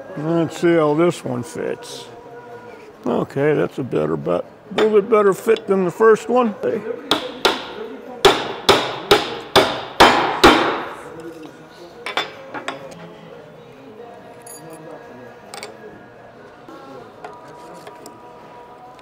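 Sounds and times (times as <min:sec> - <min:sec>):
hammer striking metal: 0:07.1 - 0:11.0.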